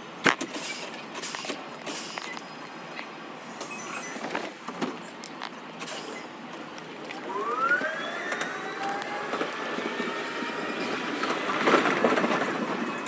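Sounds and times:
wheels rattling over points: 6.6 - 13.0
train traction motor whine: 7.0 - 13.0.

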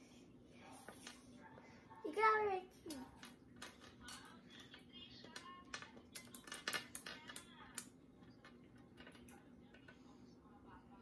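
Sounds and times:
chess pieces clicking on board: 5.4 - 9.9.

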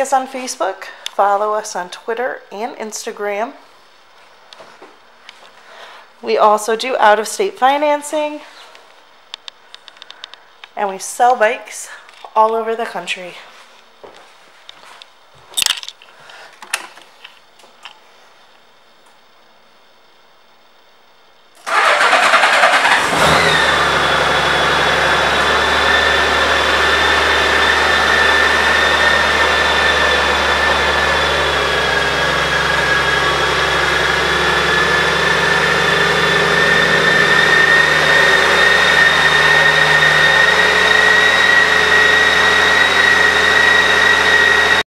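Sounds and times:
motorcycle engine starting and idling: 21.6 - 44.8
steady high whine: 23.0 - 44.8.

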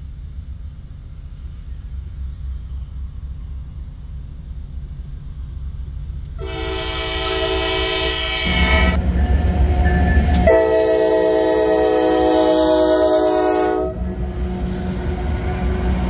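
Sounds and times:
locomotive rumble: 0.0 - 16.0
locomotive air horn blasts: 6.4 - 9.1, 9.8 - 15.8.

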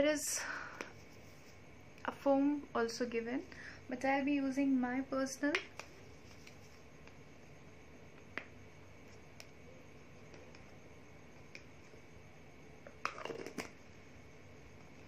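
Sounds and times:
powder container rustling and knocking: 12.8 - 13.8.

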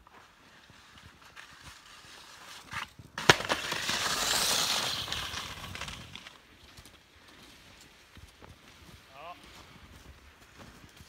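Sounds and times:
skis slapping onto snow: 0.0 - 7.1
skis hissing over snow: 0.0 - 11.0.

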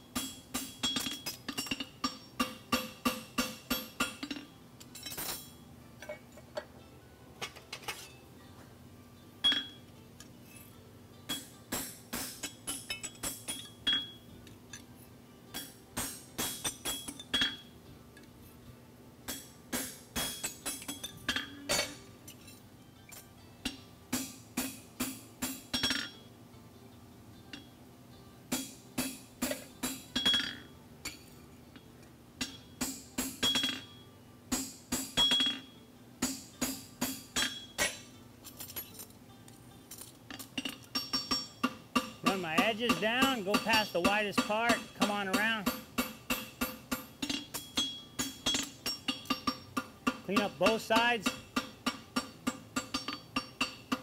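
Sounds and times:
hammer striking metal on anvil: 0.0 - 6.2, 9.4 - 9.8, 11.3 - 14.2, 15.5 - 17.7, 19.3 - 22.0, 23.7 - 26.2, 28.5 - 31.3, 32.4 - 38.1, 40.3 - 54.0.

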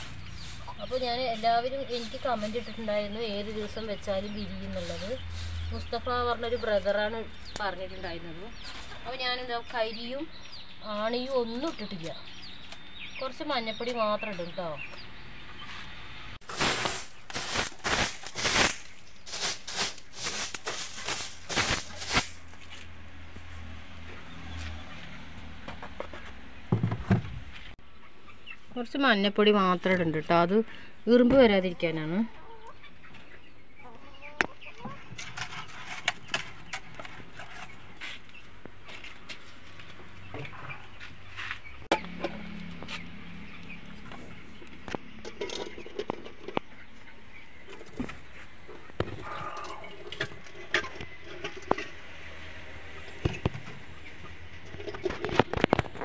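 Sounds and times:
stiff broom sweeping wood: 0.0 - 3.6, 4.2 - 5.9, 16.4 - 22.8
sand stirred in plastic tray: 16.4 - 22.4.

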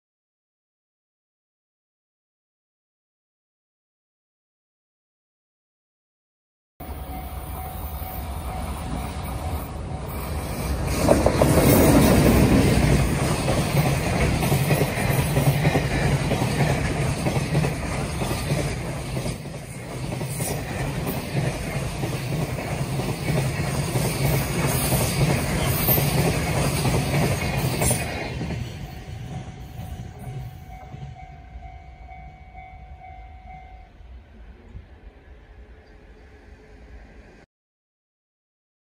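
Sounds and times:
train wheels on rails: 6.8 - 34.0
electric locomotive passing: 6.8 - 37.5.

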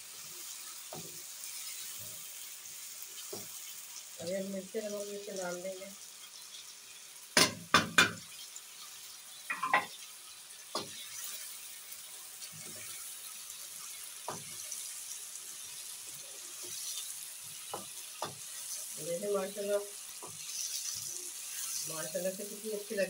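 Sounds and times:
food sizzling in a pan: 0.0 - 23.0
wooden spoon knocking pan: 7.4 - 8.2, 9.5 - 10.0.

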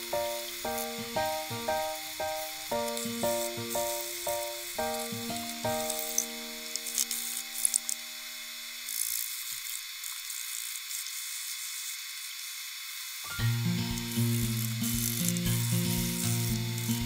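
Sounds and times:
background music: 0.0 - 6.8.

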